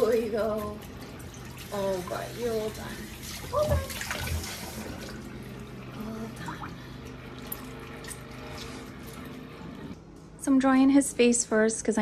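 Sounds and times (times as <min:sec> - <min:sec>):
water splashing into a sink: 0:00.0 - 0:09.4.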